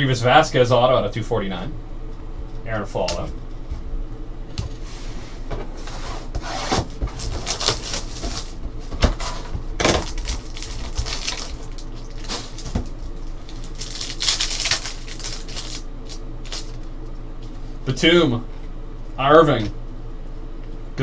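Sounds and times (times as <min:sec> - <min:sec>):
foil wrapper crinkling and tearing: 0:07.2 - 0:08.6, 0:09.8 - 0:16.9.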